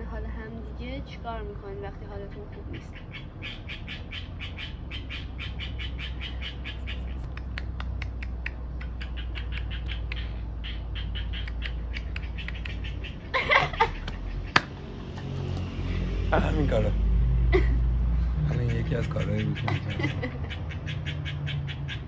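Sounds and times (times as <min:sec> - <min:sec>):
high squeaky mouth noises: 0:06.8 - 0:13.2
loud laughter: 0:13.2 - 0:15.3, 0:17.5 - 0:17.8, 0:19.1 - 0:20.8.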